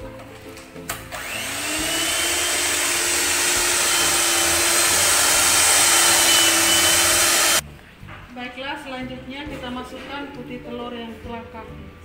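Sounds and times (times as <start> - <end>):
electric mixer whirring: 1.1 - 7.6.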